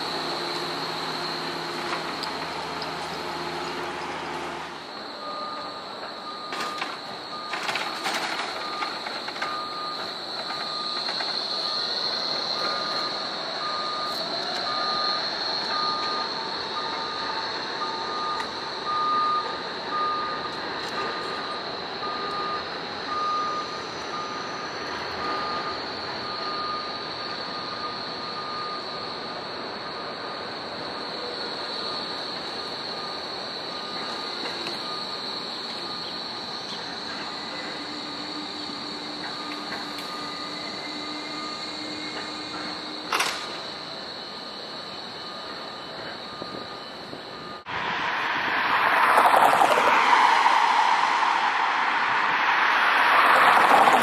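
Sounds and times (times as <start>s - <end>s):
wheels clicking over rail joints: 5.0s - 13.1s
trams running: 28.9s - 54.0s.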